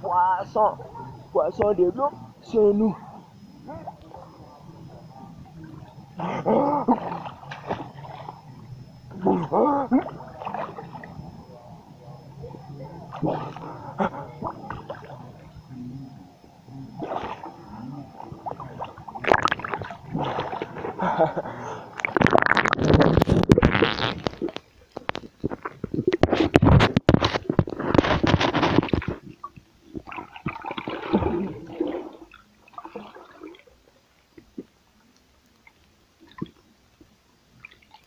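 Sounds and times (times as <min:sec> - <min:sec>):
muffled underwater gurgling and splashing: 0:03.5 - 0:33.6.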